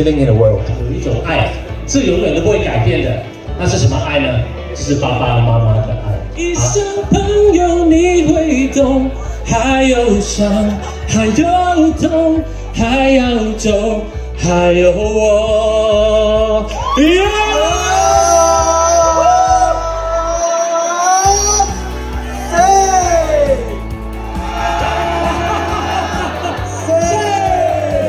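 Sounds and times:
steady bass line: 0.0 - 20.4, 21.3 - 28.0.

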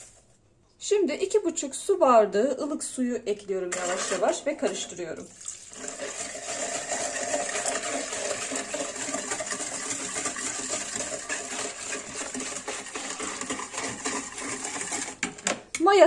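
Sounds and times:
whisk beating against bowl: 3.7 - 5.0, 5.8 - 15.6
water pouring and splashing: 5.2 - 15.1.

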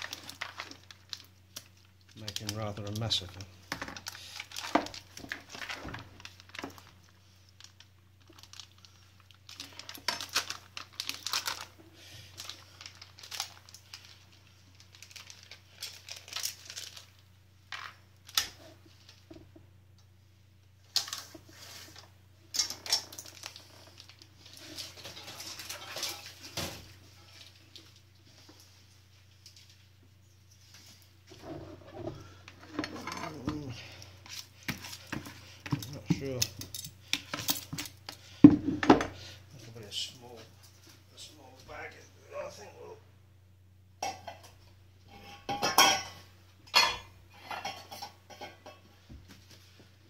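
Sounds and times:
plastic bag crinkling: 0.0 - 19.2, 20.9 - 29.9.

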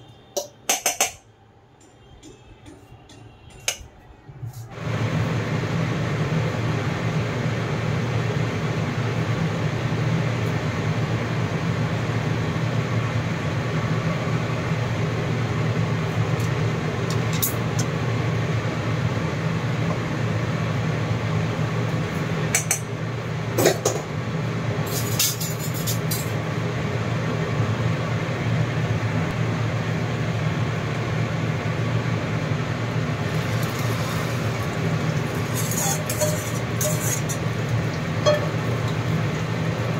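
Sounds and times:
hot oil sizzling in a pan: 33.1 - 39.9.

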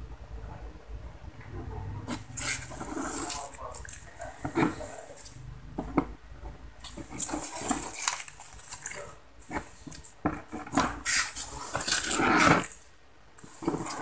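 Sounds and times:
styrofoam scraping and rustling: 2.1 - 5.4, 6.8 - 14.0.

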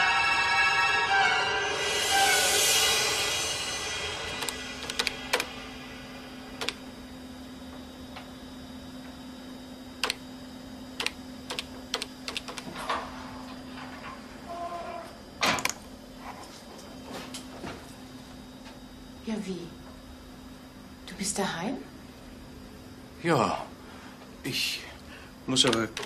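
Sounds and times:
steady low hum: 0.1 - 26.0
computer keyboard typing and clicks: 4.4 - 5.5, 6.6 - 6.8, 11.0 - 12.7, 25.6 - 26.0.

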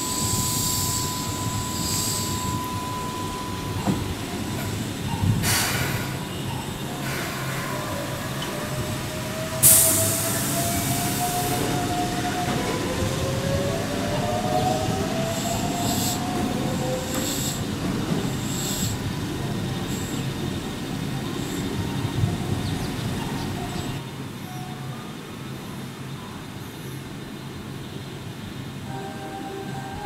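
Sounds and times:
train whine rising in pitch: 0.0 - 5.2, 6.9 - 17.7, 28.8 - 30.0
loud train hiss: 0.0 - 12.9, 15.1 - 23.0
steady train rumble: 0.0 - 30.0.

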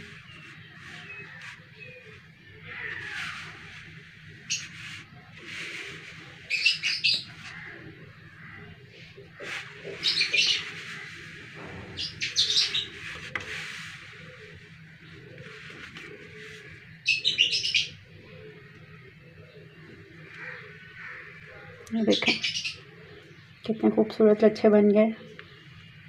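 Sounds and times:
soft rustling of sugar strands: 0.0 - 11.6
small birds chirping: 0.0 - 26.0.

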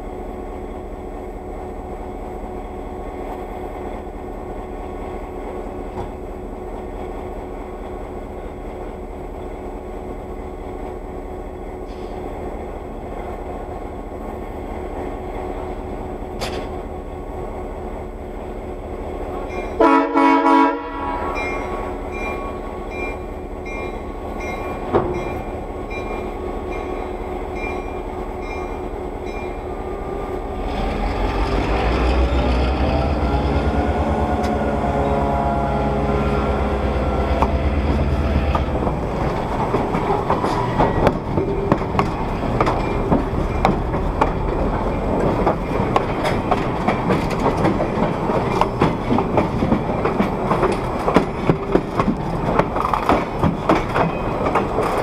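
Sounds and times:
diesel locomotive engine: 0.0 - 55.0
locomotive horn blasts: 19.8 - 21.8, 34.2 - 38.0
wheels clicking over rail joints: 37.2 - 55.0.

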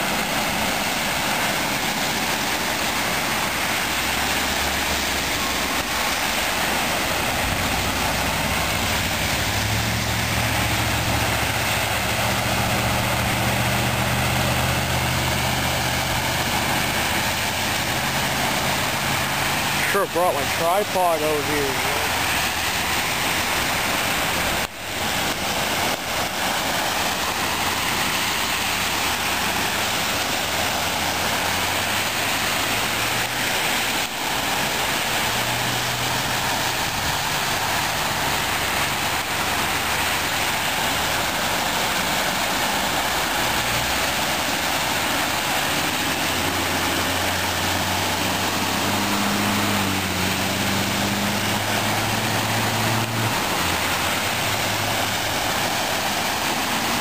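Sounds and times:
water rushing and tyre spray: 0.0 - 57.0
bus engine hum: 45.8 - 55.1.

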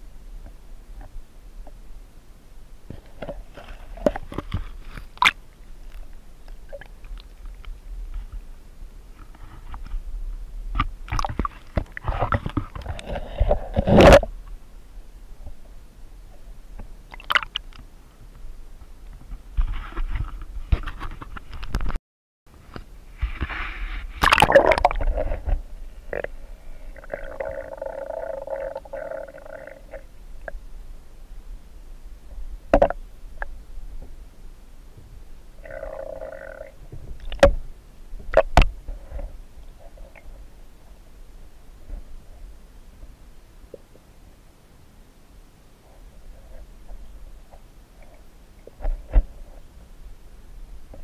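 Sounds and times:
water splashing: 17.1 - 17.6, 24.2 - 25.6
muffled underwater gurgling: 24.2 - 30.6, 35.6 - 36.8.

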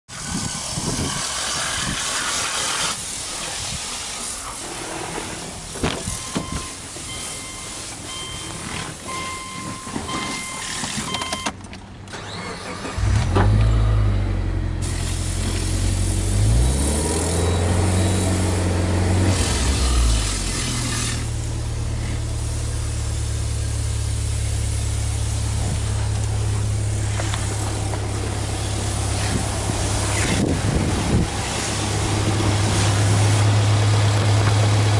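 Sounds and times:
car engine starting and idling: 1.3 - 34.9
dashboard warning chime beeping: 6.1 - 11.6.

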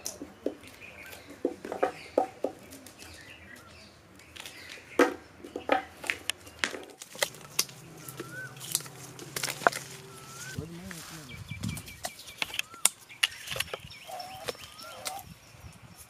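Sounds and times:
paper and cardboard tubes tapping: 0.0 - 3.2, 4.4 - 9.9.

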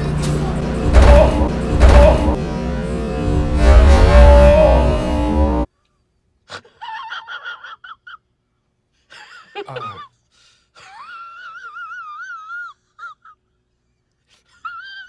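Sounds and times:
loud music: 0.0 - 5.7
long wavering high wail: 3.2 - 5.7.

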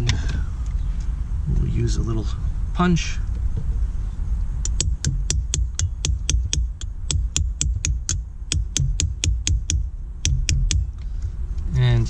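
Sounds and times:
hammer tapping metal punch: 4.6 - 10.9.

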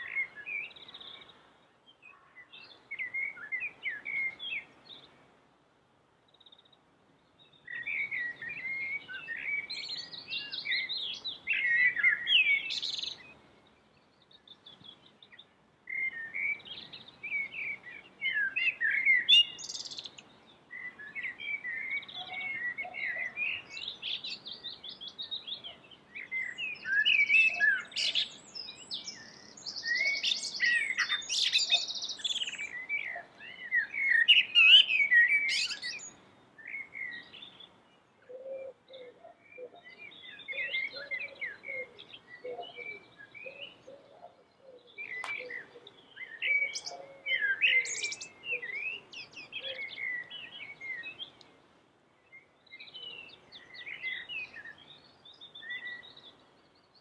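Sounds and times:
blackbird singing: 0.0 - 5.1, 6.3 - 51.6, 52.2 - 57.0.

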